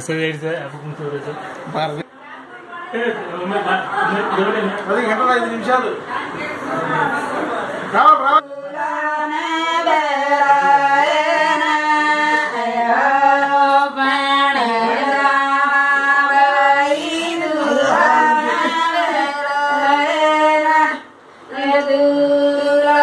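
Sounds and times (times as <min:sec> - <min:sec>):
women singing together: 0:08.4 - 0:23.0.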